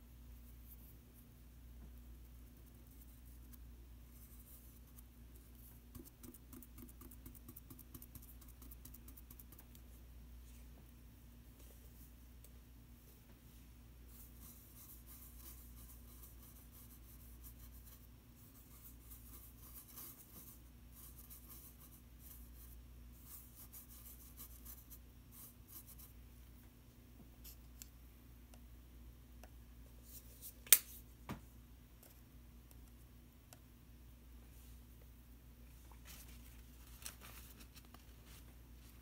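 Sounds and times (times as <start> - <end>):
paintbrush strokes on surface: 13.4 - 26.2.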